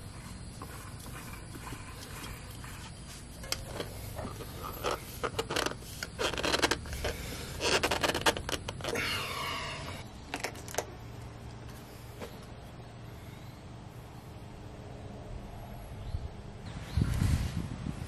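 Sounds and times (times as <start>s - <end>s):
hands rubbing metal canister: 0.0s - 9.0s.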